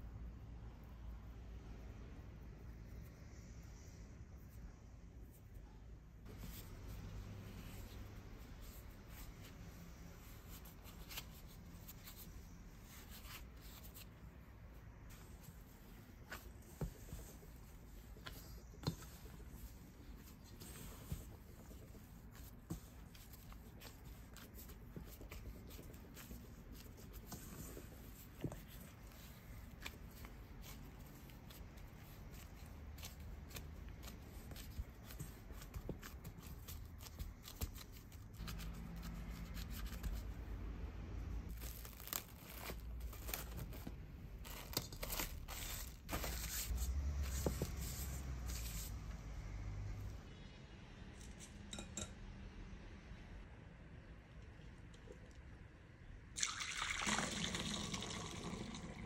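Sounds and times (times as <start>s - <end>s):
dough squishing: 6.2s - 50.3s
cling film crackling and tearing: 41.5s - 43.4s
plastic glove crinkling: 41.5s - 49.0s.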